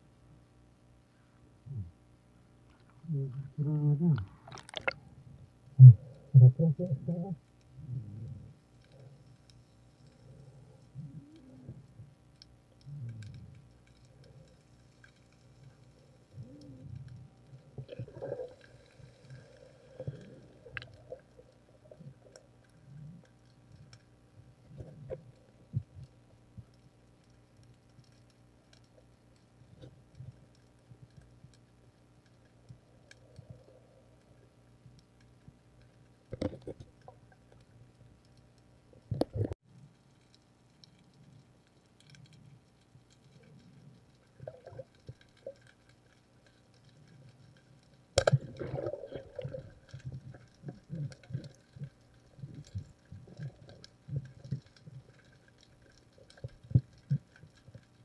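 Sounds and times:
underwater low rumbles: 0.0 - 58.0
faint clicks: 7.4 - 58.0.

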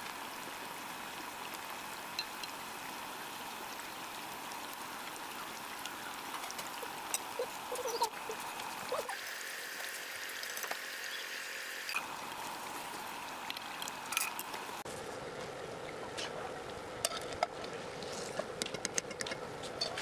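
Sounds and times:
deep-frying in hot oil: 0.0 - 14.9.

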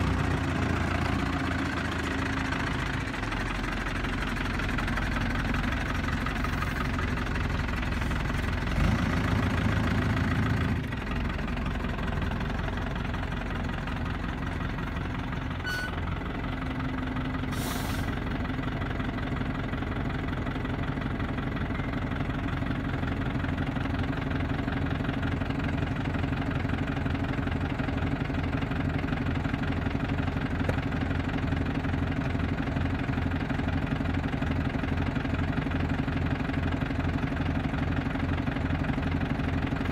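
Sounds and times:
diesel lorry engine idling: 0.0 - 39.9.

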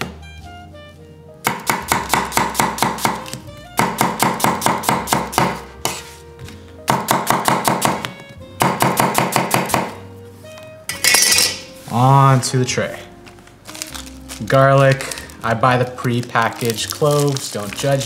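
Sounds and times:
light background music: 0.0 - 18.0
knife slicing onion on wooden board: 1.5 - 6.2.

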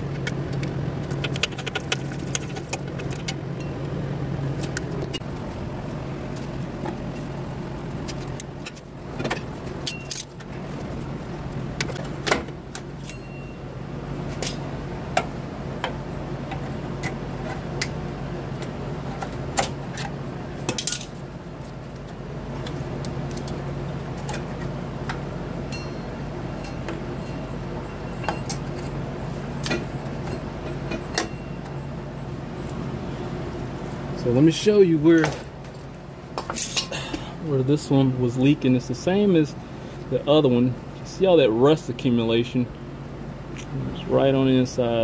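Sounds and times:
steady low hum: 0.0 - 45.0
hand tools clinking on metal: 9.8 - 10.4, 13.0 - 13.6, 25.7 - 28.7, 36.4 - 37.1.

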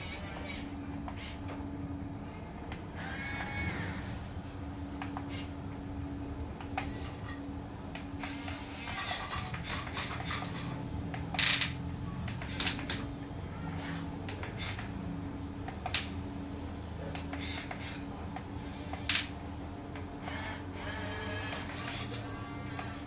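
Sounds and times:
rc excavator motors whining: 0.0 - 1.6, 2.7 - 4.4, 6.6 - 16.1, 16.9 - 19.3, 19.9 - 23.0
steady hum: 0.0 - 23.0.

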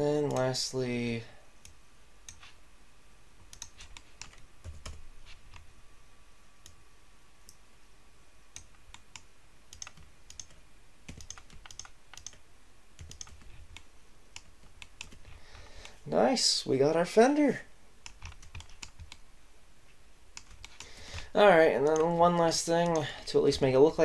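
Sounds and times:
mouse and keyboard clicks: 3.5 - 5.6, 8.6 - 12.4, 18.0 - 19.2, 20.4 - 22.1.

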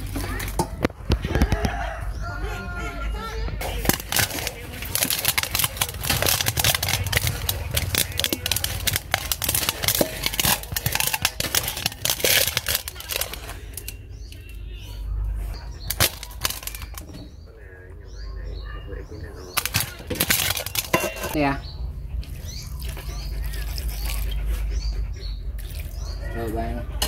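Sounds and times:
metal spoon scraping metal bowl: 3.7 - 14.6, 19.6 - 21.5.

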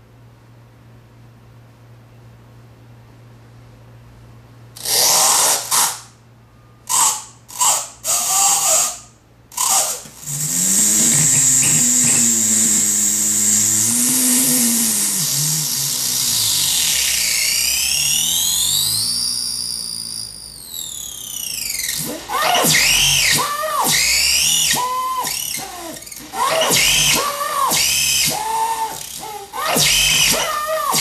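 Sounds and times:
harsh noise bursts: 6.9 - 31.0
hissing buzz: 6.9 - 31.0
warbling low tone: 10.4 - 16.0.

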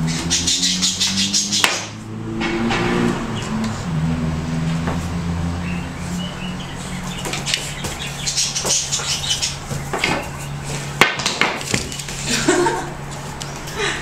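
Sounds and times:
sharp knock: 1.6 - 3.1.

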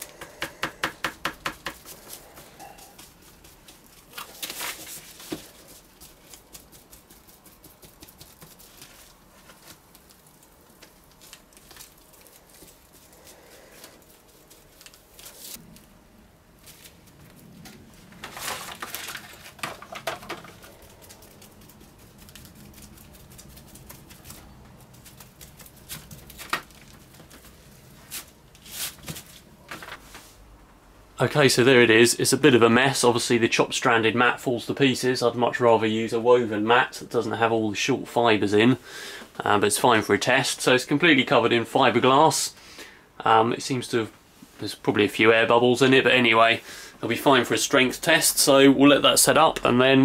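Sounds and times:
wet mat rustling and crinkling: 1.8 - 15.9, 16.6 - 30.4.

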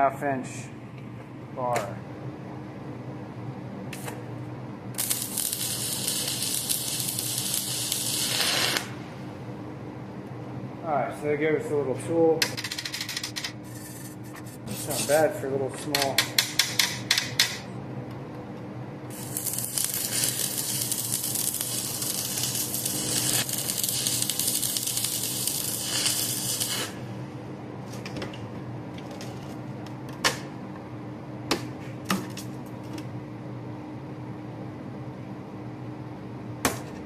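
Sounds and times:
welding arc crackling and hissing: 4.9 - 9.0, 14.6 - 15.4, 19.1 - 27.1.

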